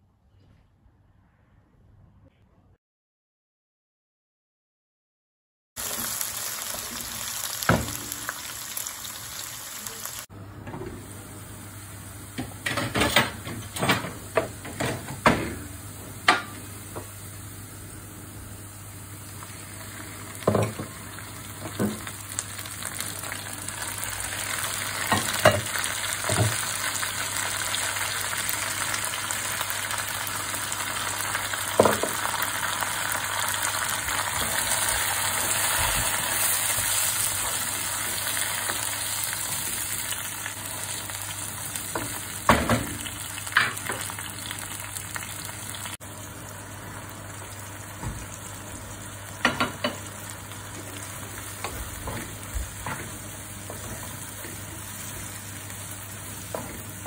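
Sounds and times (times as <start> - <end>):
onions sizzling in oil: 5.8 - 10.3, 13.3 - 57.0.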